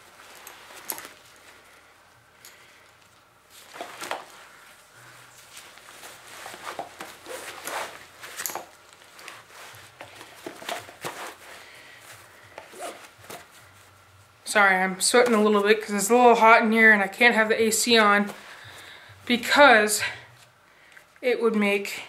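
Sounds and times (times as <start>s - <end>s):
nylon straps rustling and scraping: 0.0s - 16.4s.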